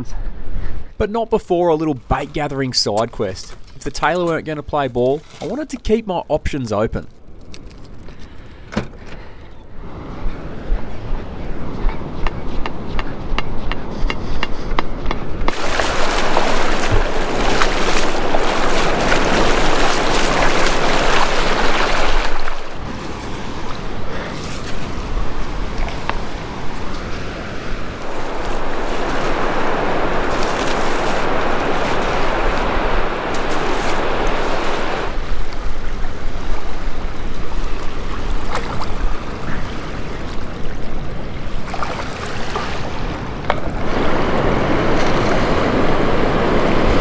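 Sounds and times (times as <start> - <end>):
ocean surf breaking on beach: 13.8 - 47.0.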